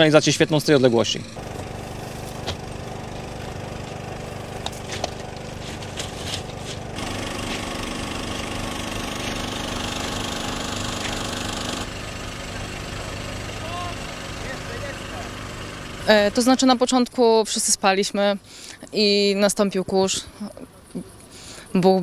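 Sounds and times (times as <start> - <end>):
engine idling: 1.3 - 17.0.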